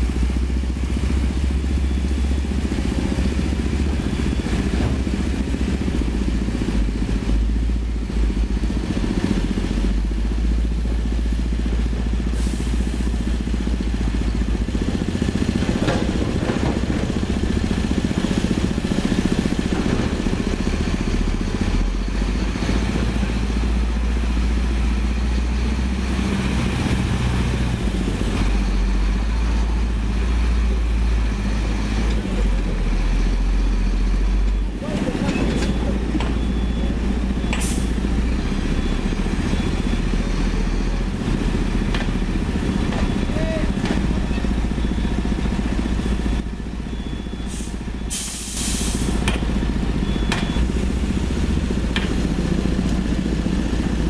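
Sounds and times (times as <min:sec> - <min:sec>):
heavy diesel engines running: 0:00.0 - 0:54.0
knocks and clanks: 0:15.6 - 0:17.2, 0:42.8 - 0:44.2.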